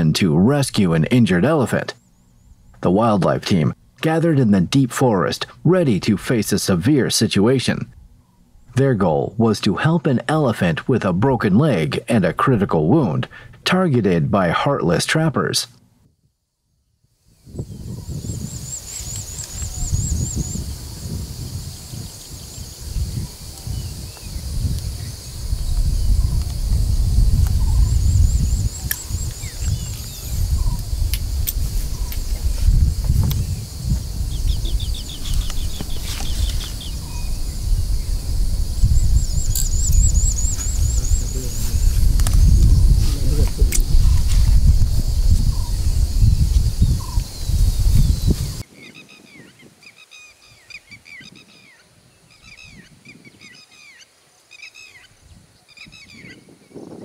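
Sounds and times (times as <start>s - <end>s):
birds chirping: 0.0s - 13.0s, 17.4s - 57.0s.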